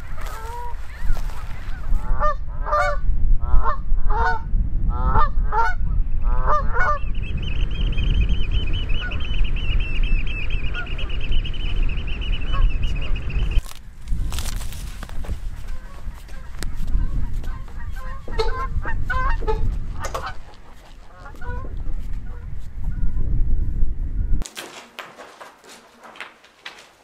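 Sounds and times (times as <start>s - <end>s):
geese honking: 0.0s - 3.0s, 5.1s - 7.0s, 10.4s - 13.6s, 15.5s - 23.0s
wind rumbling on microphone: 0.0s - 24.5s.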